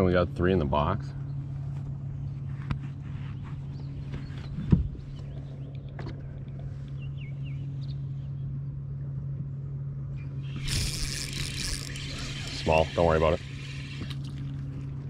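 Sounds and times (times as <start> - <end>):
electric trolling motor humming: 5.0 - 15.0.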